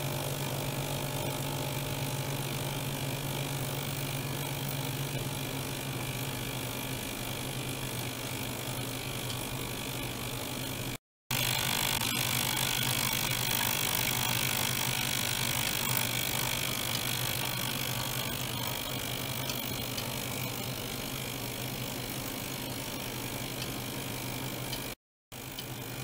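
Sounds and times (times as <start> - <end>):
ultrasonic cleaner humming: 0.0 - 26.0.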